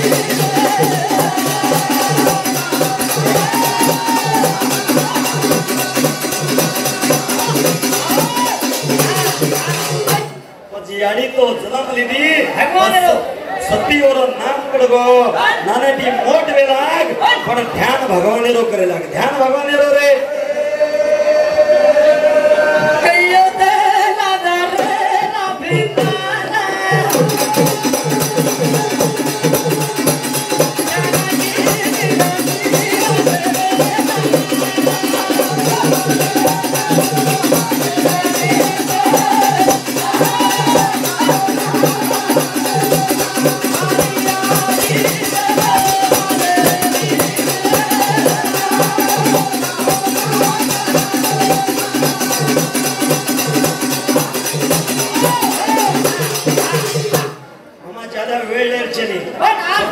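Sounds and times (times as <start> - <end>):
hand drums beating: 0.0 - 10.4, 26.9 - 57.4
man singing: 0.0 - 10.4, 17.7 - 57.4.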